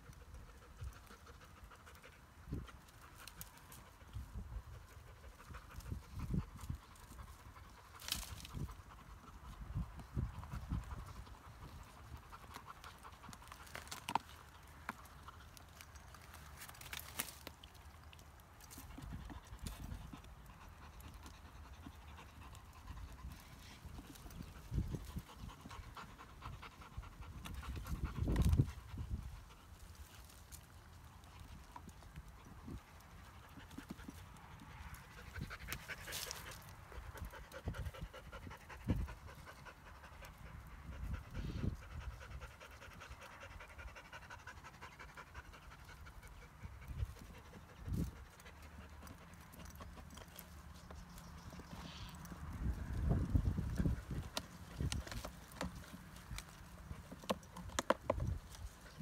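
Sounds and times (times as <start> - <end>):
dry twigs cracking: 11.9 - 20.1
dog panting: 18.7 - 52.4.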